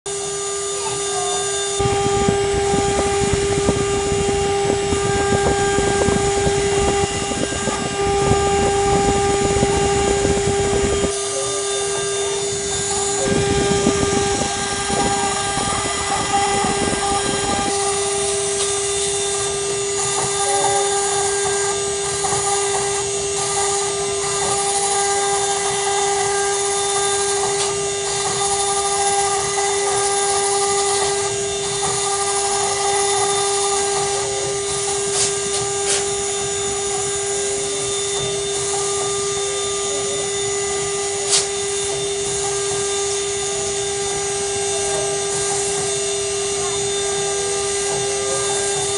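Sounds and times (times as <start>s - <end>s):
rattling grinding of milling: 0.1s - 48.9s
spindle whining: 0.1s - 48.9s.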